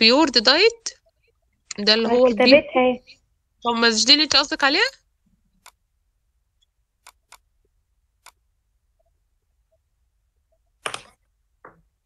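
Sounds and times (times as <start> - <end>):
computer mouse clicks: 5.6 - 5.8, 6.6 - 7.5, 8.2 - 8.4, 10.8 - 11.2.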